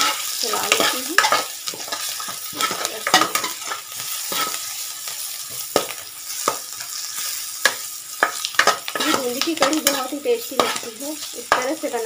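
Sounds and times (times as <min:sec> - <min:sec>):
metal spoon scraping pan: 0:00.0 - 0:04.7, 0:05.7 - 0:11.8
onions sizzling in hot oil: 0:00.0 - 0:12.0.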